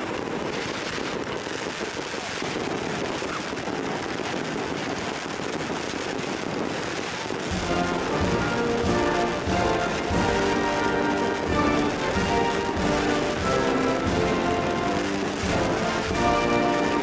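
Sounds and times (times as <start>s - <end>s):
fireworks crackling and popping: 0.0s - 17.0s.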